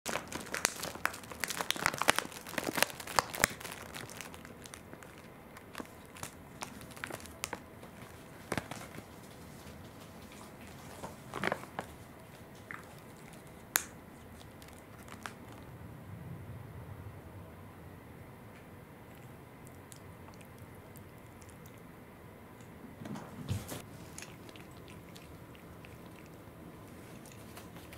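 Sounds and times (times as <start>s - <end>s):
plastic bag crinkling: 0.1s - 9.3s, 10.6s - 15.6s.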